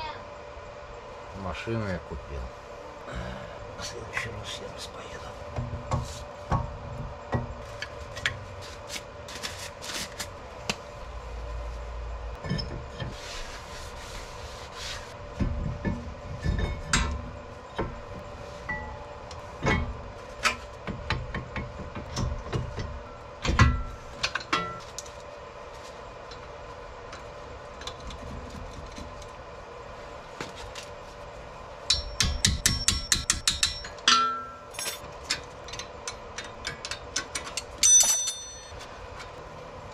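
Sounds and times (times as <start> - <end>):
metal brake parts clinking: 31.9 - 39.3.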